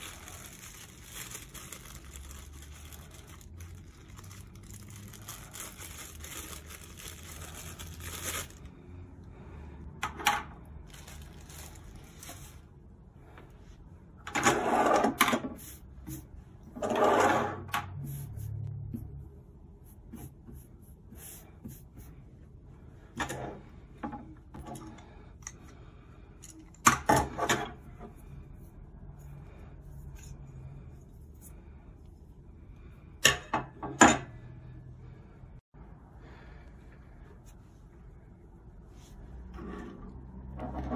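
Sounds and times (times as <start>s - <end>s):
plastic bag crinkling: 0.0s - 8.7s, 10.8s - 12.6s
metal sliding and scraping: 16.6s - 17.8s, 39.5s - 40.9s.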